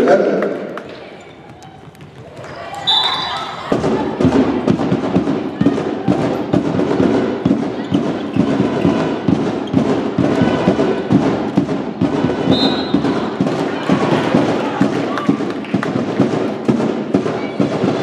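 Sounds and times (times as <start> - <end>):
referee's whistle blast: 2.8 - 3.4, 12.5 - 13.1.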